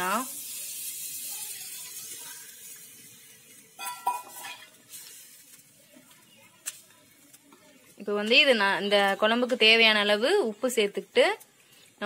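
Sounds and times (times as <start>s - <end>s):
liquid sizzling in hot pot: 0.0s - 12.0s
metal spoon stirring in pot: 0.1s - 8.0s.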